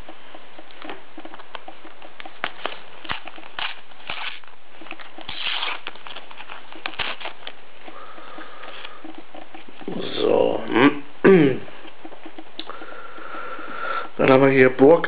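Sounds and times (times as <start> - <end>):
sticker packet torn open: 2.4 - 4.5, 5.2 - 7.4.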